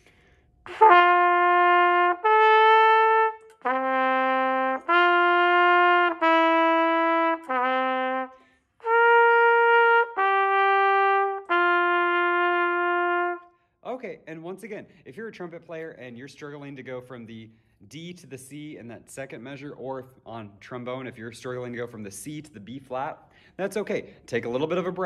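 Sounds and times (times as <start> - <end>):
trumpet playing arpeggio: 0.7 - 13.5.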